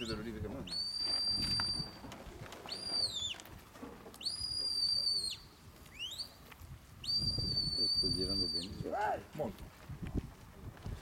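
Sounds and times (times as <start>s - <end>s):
shepherd's whistle: 0.6s - 2.0s, 2.7s - 3.4s, 4.2s - 6.4s, 7.0s - 8.8s.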